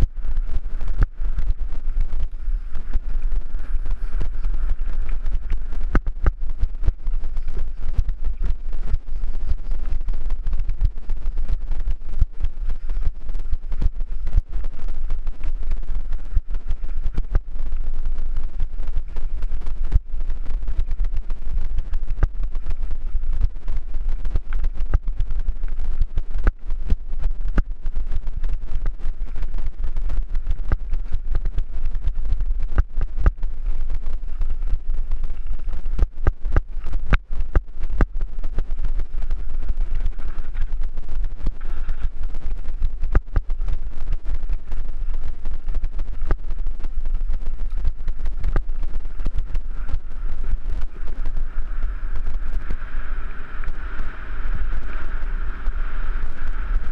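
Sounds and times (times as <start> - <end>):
wind rumble on microphone: 0.0 - 56.9.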